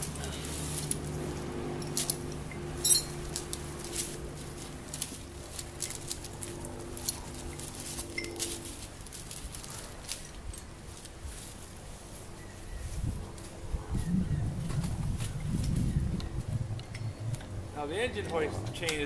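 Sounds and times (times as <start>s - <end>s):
steel chain rattling and clinking: 0.0s - 11.3s.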